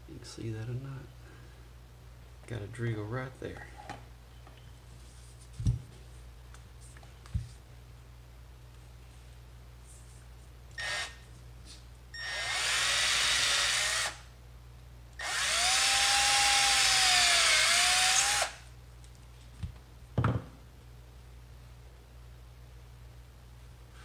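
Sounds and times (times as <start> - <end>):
cordless drill boring into wood: 10.8 - 11.2, 12.2 - 14.2, 15.2 - 18.6.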